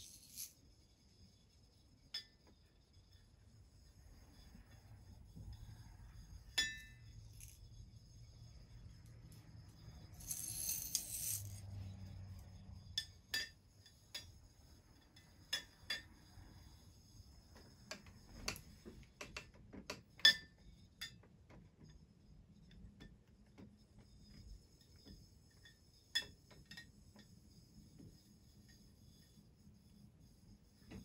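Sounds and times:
glass tubes clinking on glass: 0:06.5 - 0:07.6.

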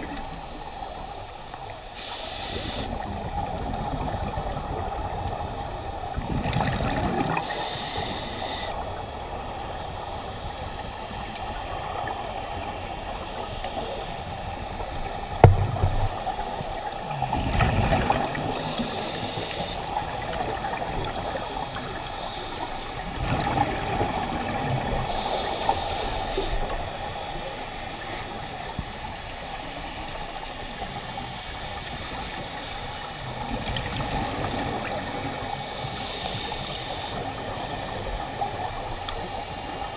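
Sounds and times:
diver breathing through regulator: 0:02.0 - 0:03.0, 0:07.3 - 0:08.9, 0:17.1 - 0:20.1, 0:25.0 - 0:28.2, 0:35.6 - 0:38.4.

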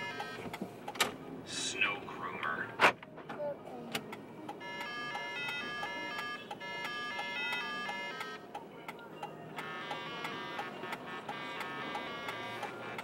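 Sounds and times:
bright melody over ticking beat: 0:00.0 - 0:00.5, 0:04.5 - 0:13.0.

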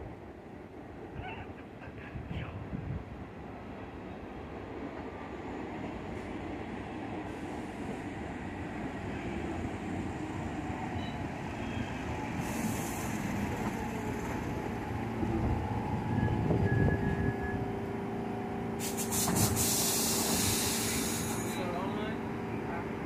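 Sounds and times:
train humming while standing: 0:00.0 - 0:23.0
wheels rumbling on rail: 0:04.2 - 0:23.0
short hiss: 0:18.8 - 0:21.5.

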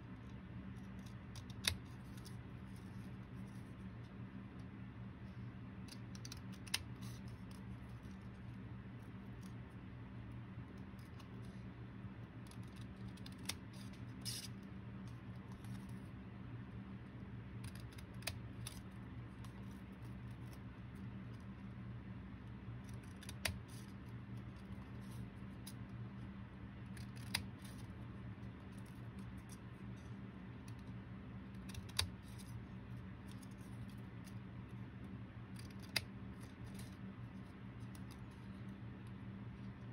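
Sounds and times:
steady low hum: 0:00.0 - 0:39.9
scissors snipping paper: 0:00.3 - 0:03.6, 0:12.4 - 0:14.6, 0:17.6 - 0:20.6, 0:22.8 - 0:25.9, 0:26.8 - 0:27.9, 0:31.5 - 0:32.6, 0:35.5 - 0:37.0.

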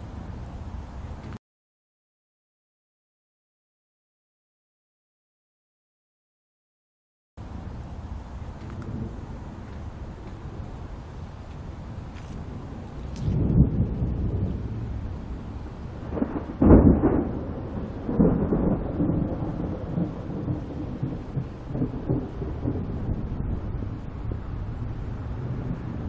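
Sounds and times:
thunder rumbling: 0:07.4 - 0:26.0
sharp thunderclap: 0:08.7 - 0:10.8, 0:12.4 - 0:26.0.

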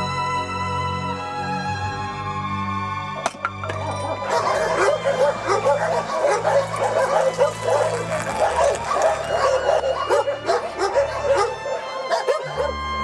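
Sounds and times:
many dogs barking and yelping: 0:04.1 - 0:13.0.

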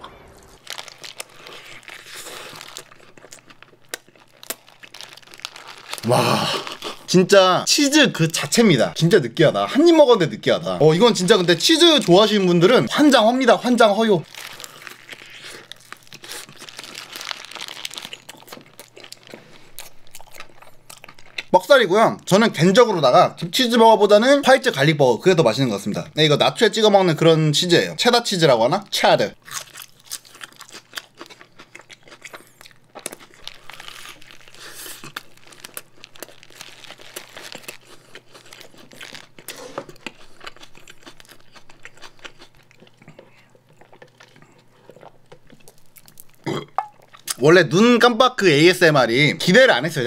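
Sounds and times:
person chewing burger: 0:00.3 - 0:07.1, 0:14.2 - 0:21.5, 0:29.4 - 0:47.4
paper wrapper crinkling: 0:00.3 - 0:07.4, 0:10.8 - 0:20.6, 0:33.0 - 0:42.7.

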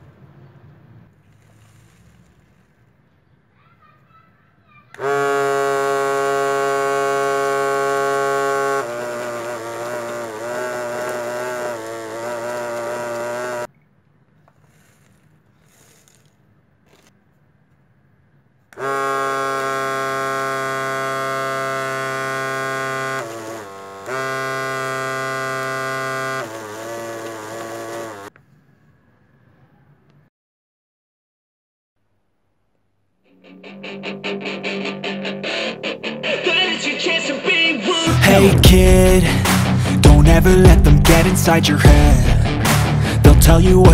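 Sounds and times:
small gear motor buzzing whir: 0:05.0 - 0:13.7, 0:18.8 - 0:28.3.

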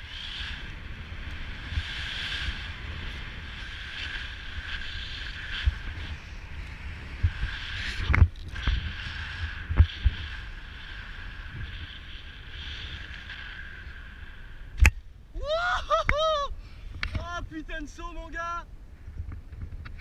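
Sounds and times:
man whooping: 0:15.3 - 0:16.6.

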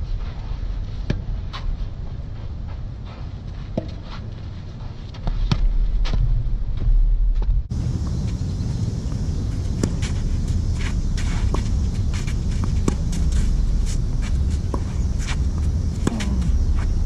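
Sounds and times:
wind rumbling on microphone: 0:00.0 - 0:17.0
tennis ball bouncing: 0:09.2 - 0:17.0
racket hitting tennis ball: 0:09.7 - 0:17.0.

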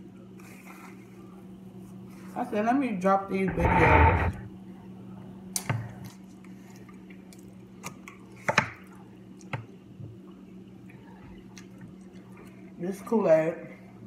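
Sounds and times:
steady low hum: 0:03.1 - 0:04.9.

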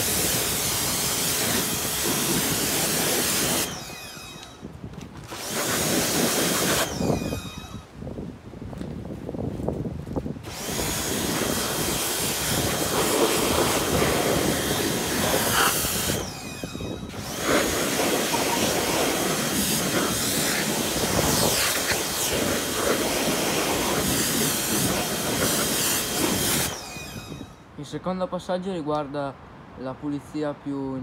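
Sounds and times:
pressure washer spraying water: 0:00.0 - 0:04.6, 0:05.3 - 0:07.8, 0:10.4 - 0:27.5.

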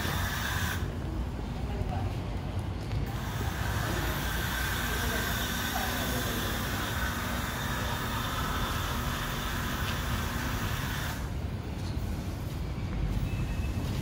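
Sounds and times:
steam cleaner nozzle hissing: 0:00.0 - 0:00.9.

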